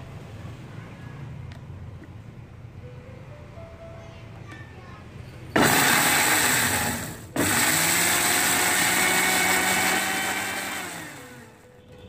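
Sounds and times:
food processor motor grinding: 0:05.6 - 0:11.5.

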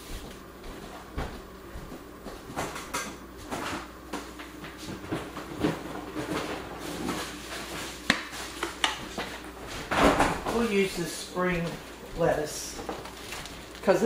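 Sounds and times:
kitchen items knocking and clattering: 0:02.6 - 0:07.8, 0:09.8 - 0:10.7
rustling of handled things: 0:04.6 - 0:14.0.

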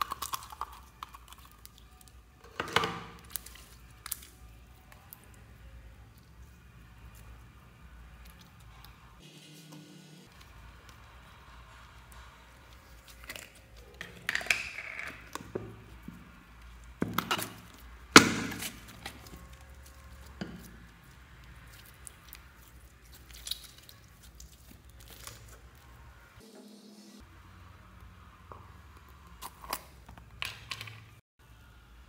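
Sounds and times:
slime squelching: 0:11.9 - 0:26.0.

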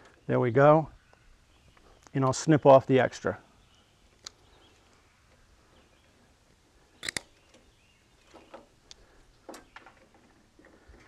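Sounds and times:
hand cutters snipping rope: 0:07.0 - 0:07.3.

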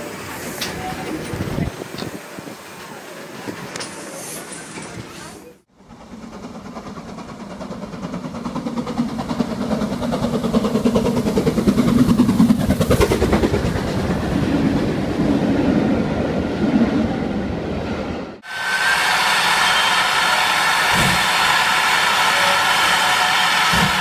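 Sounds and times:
steam locomotive chuffing: 0:05.6 - 0:14.9, 0:18.4 - 0:24.0
train wheels clattering on rails: 0:05.9 - 0:14.8.

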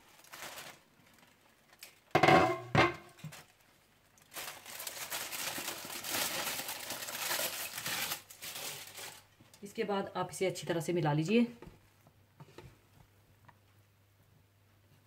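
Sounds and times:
loud knocks on a pot: 0:02.2 - 0:03.1.

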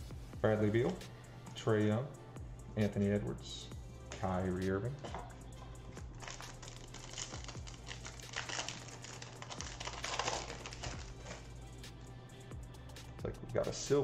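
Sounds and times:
foil wrapper tearing and crinkling: 0:06.0 - 0:11.5
clicks and rustles of cards: 0:06.2 - 0:11.4.

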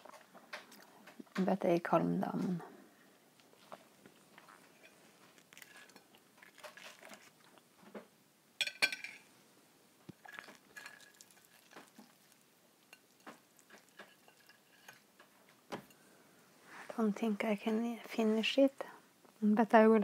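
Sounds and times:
soft chewing: 0:00.0 - 0:01.4, 0:02.6 - 0:08.1, 0:10.1 - 0:16.2
knife clinking on plate: 0:08.6 - 0:09.2.

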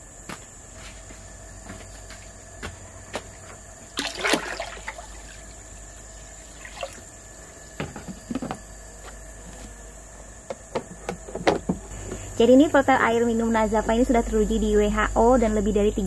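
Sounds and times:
water sloshing in plastic tank: 0:03.4 - 0:08.6.

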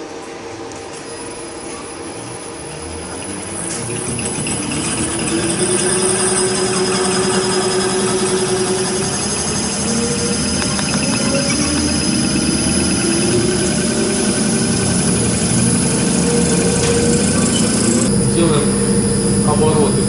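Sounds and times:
rising whine: 0:00.8 - 0:20.0
fuel pump test bench running: 0:01.0 - 0:20.0.

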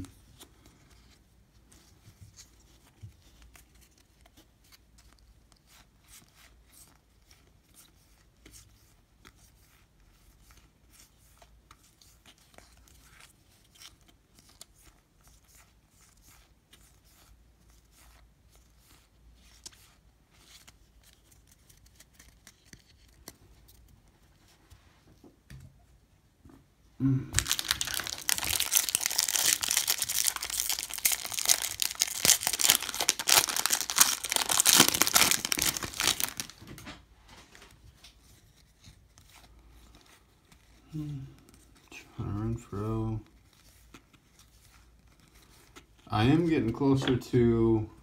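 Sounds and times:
cards being flipped and shuffled: 0:00.0 - 0:25.7, 0:27.4 - 0:40.8, 0:42.8 - 0:47.2
foil wrapper handled: 0:27.4 - 0:36.7.

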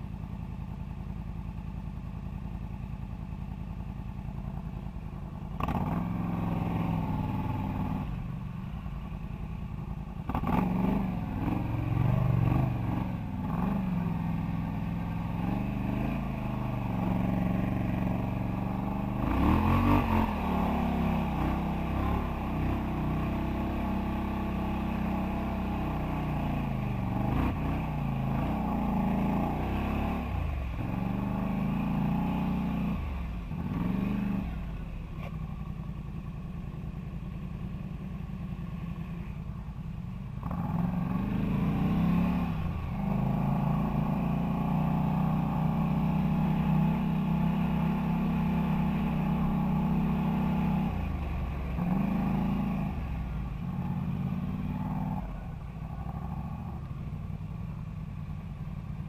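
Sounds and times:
quad bike engine revving: 0:05.6 - 0:08.1, 0:10.3 - 0:34.7, 0:40.4 - 0:56.9.

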